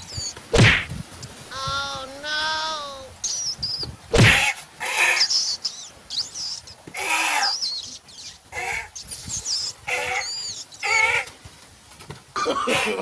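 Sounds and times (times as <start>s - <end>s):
birds chirping: 0.0s - 0.8s, 1.5s - 11.5s
short wavering cries: 4.8s - 11.3s.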